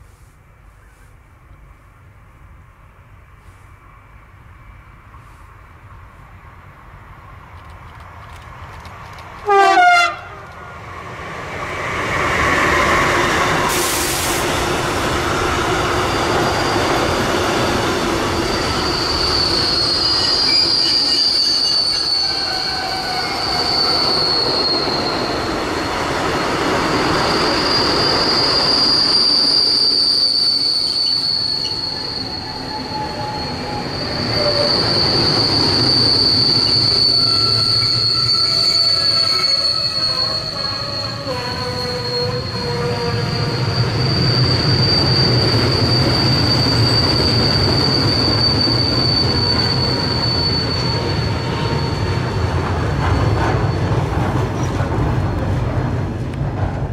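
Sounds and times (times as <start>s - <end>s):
train horn blast: 9.4s - 10.5s
train wheels squealing: 11.0s - 55.8s.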